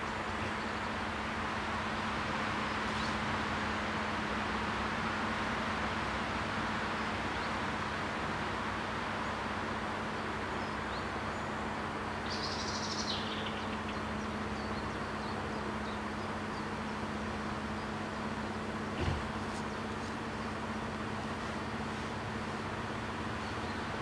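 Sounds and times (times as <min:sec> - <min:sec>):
outdoor background hiss: 0:00.0 - 0:24.0.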